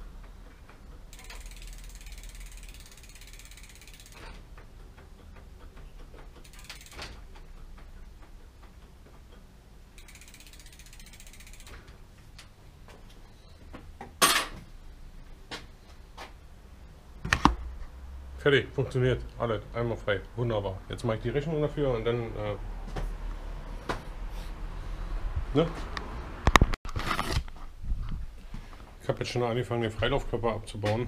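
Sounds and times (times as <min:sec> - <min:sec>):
bicycle freewheel ticking: 0:01.0 - 0:08.8, 0:09.9 - 0:11.9.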